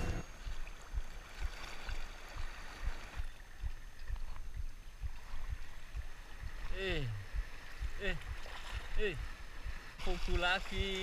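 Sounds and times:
soft low thumps: 0.0 - 11.0.

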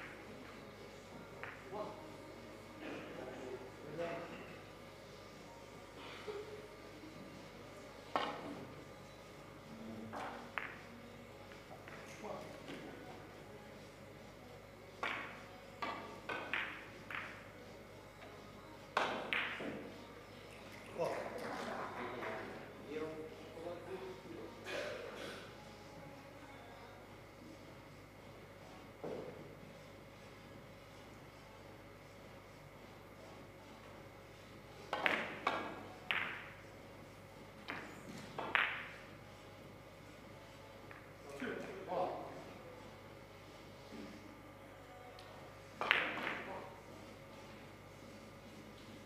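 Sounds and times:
billiard balls clicking: 15.0 - 17.5.

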